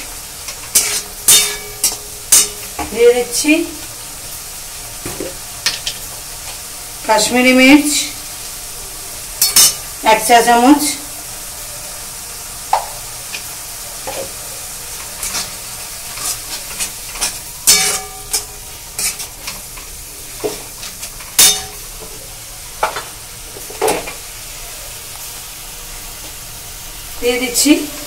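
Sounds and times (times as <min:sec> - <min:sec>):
food sizzling: 0:00.0 - 0:28.0
spatula scraping metal pan: 0:00.5 - 0:02.7, 0:15.0 - 0:22.2.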